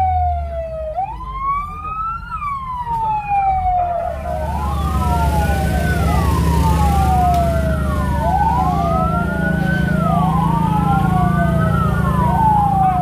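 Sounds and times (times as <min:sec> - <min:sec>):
fire truck sirens wailing: 0:00.0 - 0:13.0
low engine rumble: 0:00.0 - 0:13.0.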